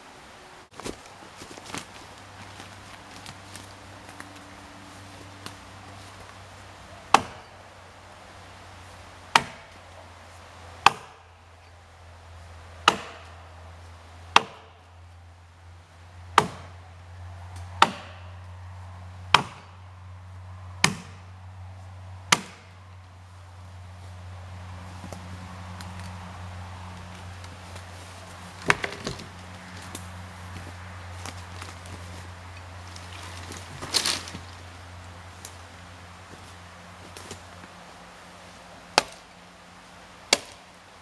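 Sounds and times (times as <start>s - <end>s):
footsteps in dry leaves: 0.7s - 6.7s, 23.9s - 38.3s
axe chopping wood: 7.1s - 7.5s, 9.3s - 9.8s, 10.8s - 11.3s, 12.8s - 13.4s, 14.3s - 14.8s, 16.3s - 16.8s, 17.7s - 18.3s, 19.3s - 19.8s, 20.8s - 21.2s, 22.3s - 22.8s, 28.6s - 29.3s, 38.9s - 39.3s, 40.3s - 40.6s.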